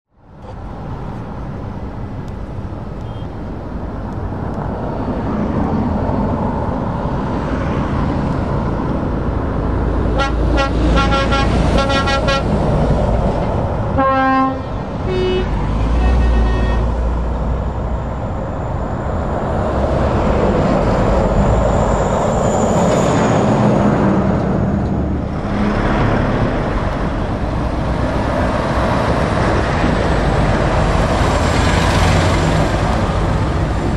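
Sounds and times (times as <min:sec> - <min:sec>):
heavy trucks driving past: 0:00.2 - 0:33.9
truck horn blasts: 0:10.1 - 0:12.6, 0:14.0 - 0:17.0.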